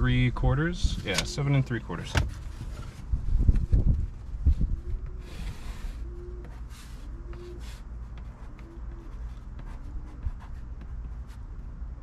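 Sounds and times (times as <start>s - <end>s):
pencil scratching on cardboard: 5.0s - 11.4s.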